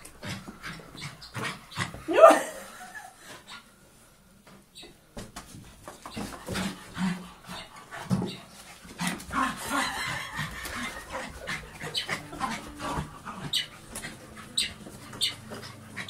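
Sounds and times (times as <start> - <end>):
ball and paws knocking: 5.2 - 7.0, 8.0 - 9.4.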